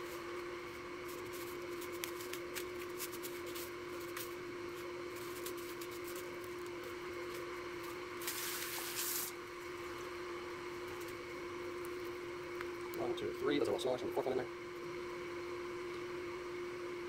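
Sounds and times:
steady hum: 0.0 - 17.0
breading rustling: 0.1 - 10.1.

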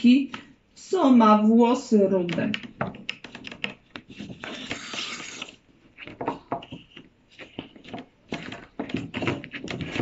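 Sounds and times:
picture card sliding out: 4.2 - 5.6.

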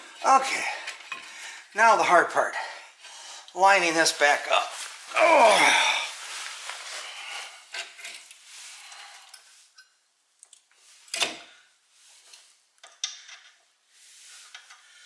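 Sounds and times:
metal clinks and scraping: 7.7 - 10.0.

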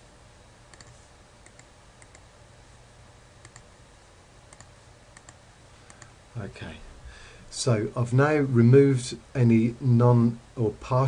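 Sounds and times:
low steady hum: 0.0 - 11.0
computer mouse clicks: 0.7 - 2.3, 3.4 - 3.7, 4.5 - 6.1.

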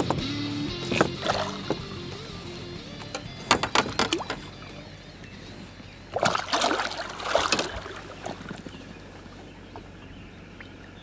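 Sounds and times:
water splashing: 0.8 - 2.3, 3.0 - 11.0
fish thrashing in water: 0.9 - 1.8, 3.5 - 4.8, 6.1 - 9.4.

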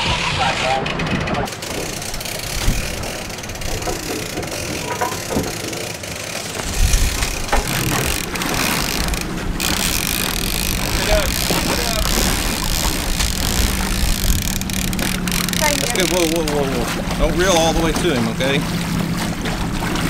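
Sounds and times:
wind buffeting microphone: 2.1 - 4.3, 6.5 - 18.2.

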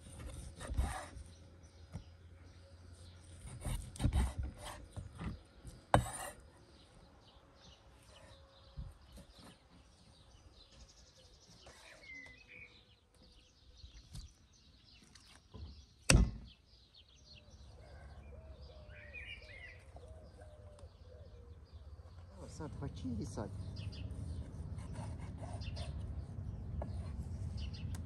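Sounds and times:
small birds chirping: 0.0 - 28.0
sharp knock: 16.1 - 16.4.

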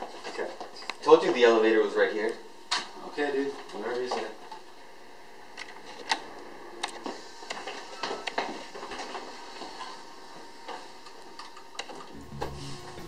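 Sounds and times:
faint steady hum: 0.0 - 13.0
background music with low bass: 12.1 - 13.0.

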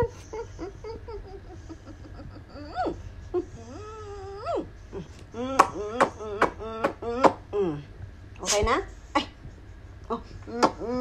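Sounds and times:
dog whining and moaning: 2.4 - 7.8.

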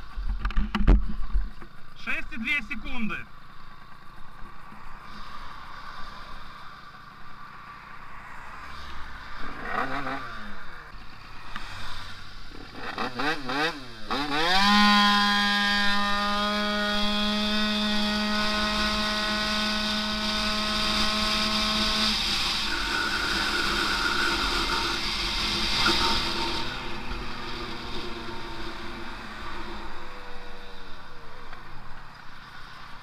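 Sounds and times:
scooter engine revving: 9.5 - 10.6, 12.5 - 31.5.

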